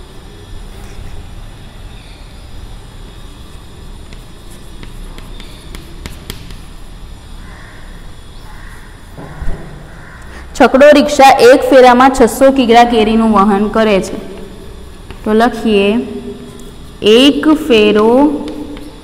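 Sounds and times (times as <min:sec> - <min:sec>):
low background hum: 0:00.0 - 0:19.0
chalk tapping and scratching on blackboard: 0:03.0 - 0:07.0, 0:14.3 - 0:15.8, 0:16.5 - 0:19.0.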